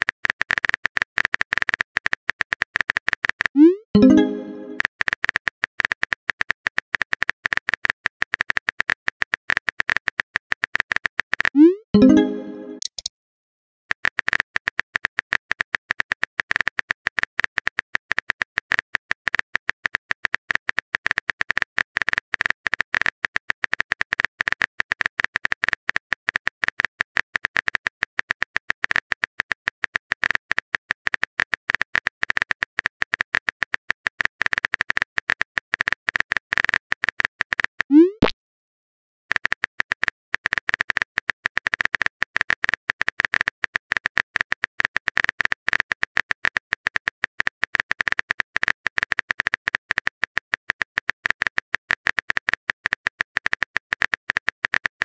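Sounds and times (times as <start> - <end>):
phone keyboard typing clicks: 11.6 - 13.1
short rising blip: 37.9 - 38.3.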